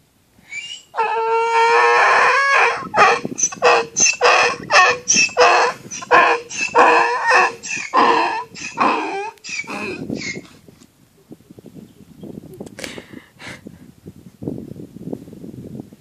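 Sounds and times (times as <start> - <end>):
donkey braying: 1.0 - 10.5.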